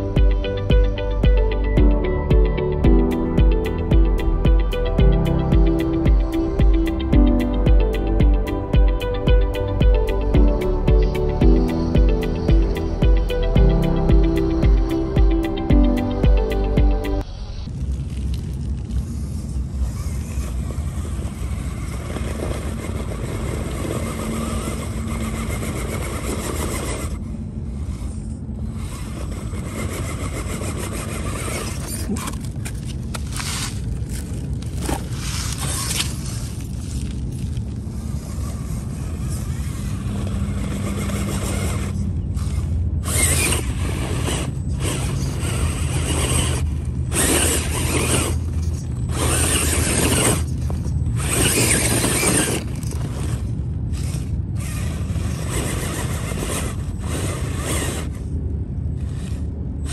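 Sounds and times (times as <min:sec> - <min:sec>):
electric motor whirring: 0:00.0 - 0:17.7, 0:19.2 - 0:59.9
tyres crunching on dirt: 0:30.8 - 0:42.0.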